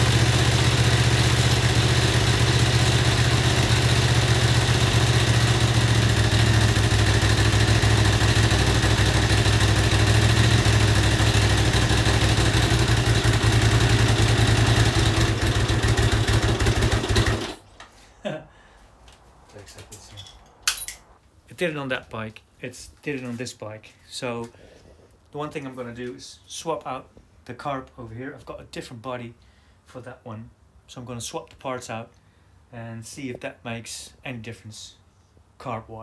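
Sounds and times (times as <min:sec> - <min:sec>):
motorcycle engine running unevenly: 0:00.0 - 0:17.6.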